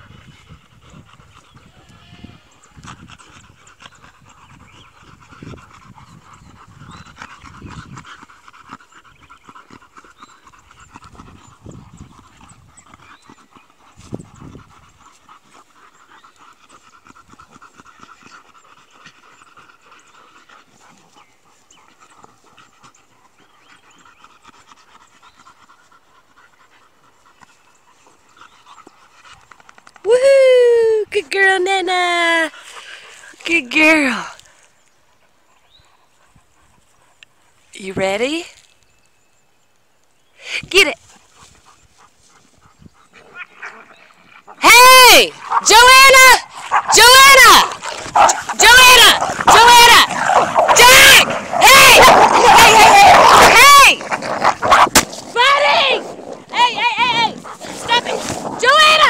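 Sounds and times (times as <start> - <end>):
dogs panting: 0.0 - 30.1, 31.2 - 39.1, 40.0 - 59.0
scuffling and rustling: 49.2 - 59.0.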